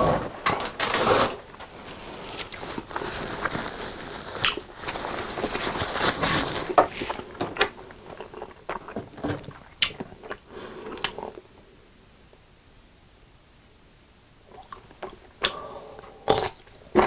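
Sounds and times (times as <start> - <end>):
wet chewing of pasta: 2.3 - 11.4, 14.5 - 17.0.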